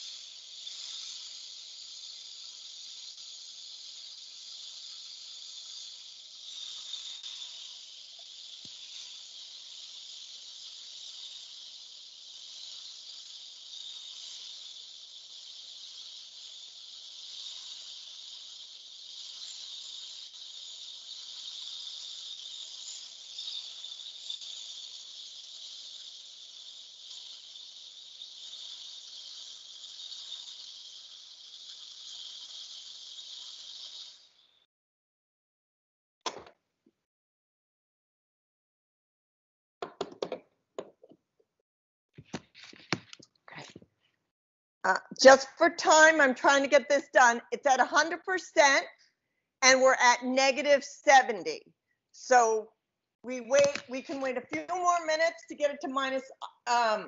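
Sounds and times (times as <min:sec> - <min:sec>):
liquid nitrogen boiling hiss: 0:00.0 - 0:34.7, 0:44.9 - 0:49.0, 0:49.6 - 0:51.6, 0:53.3 - 0:57.0.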